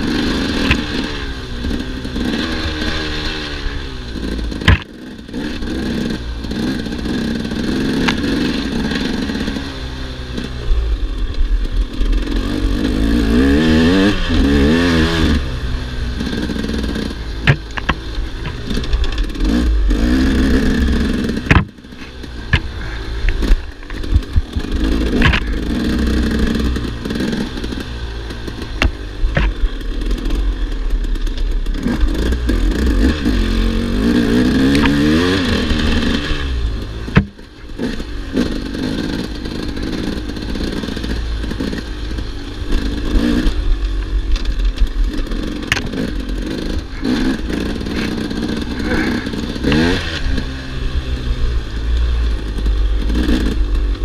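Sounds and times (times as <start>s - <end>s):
motorcycle engine revving: 0.0s - 54.0s
sharp knocks and clatter: 4.2s - 5.8s, 16.2s - 33.4s, 37.1s - 50.5s.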